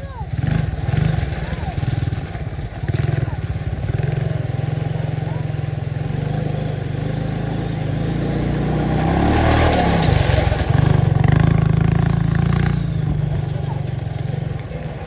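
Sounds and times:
quad engine running: 0.0 - 15.0
water splashing: 8.0 - 15.0.

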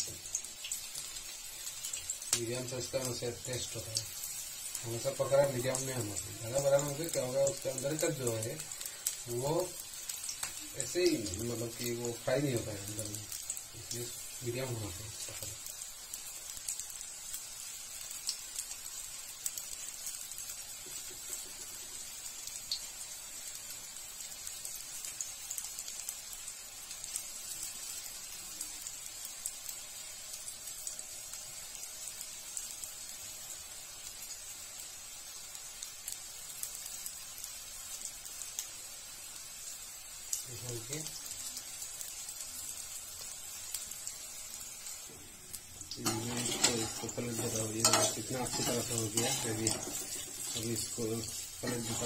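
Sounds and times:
food sizzling in hot oil: 0.0 - 52.0.

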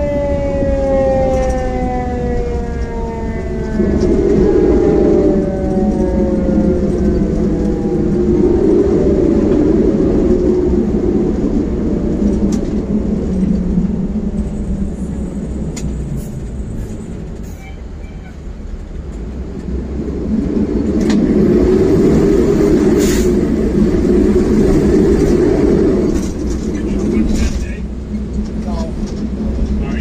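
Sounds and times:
diesel engine rumble from cab: 10.8 - 30.0.

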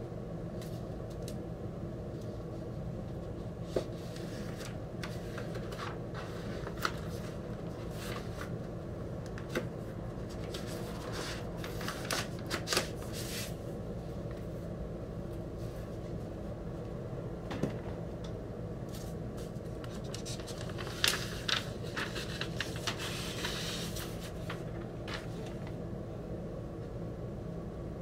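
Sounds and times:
low room hum: 0.0 - 28.0
paper and cardboard rustling: 3.7 - 8.6, 9.4 - 13.6, 18.9 - 25.8.

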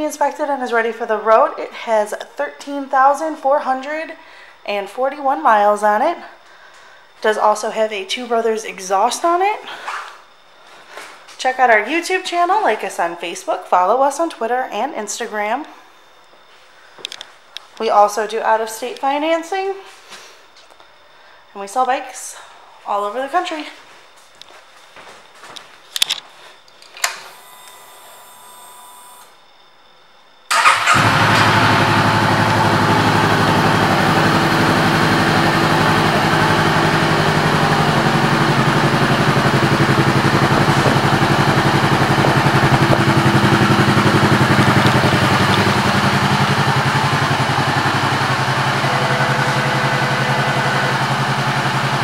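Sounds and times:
faint hum: 0.0 - 52.0
motorcycle engine starting and idling: 30.5 - 52.0.

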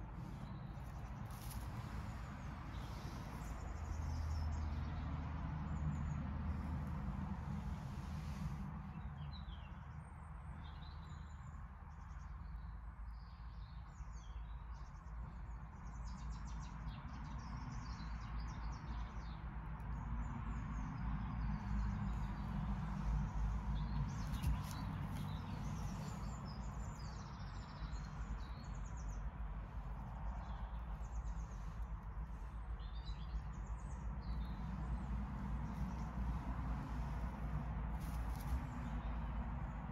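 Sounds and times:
small birds chirping: 0.0 - 7.0, 7.6 - 39.9
steady low rumble: 21.4 - 39.9.

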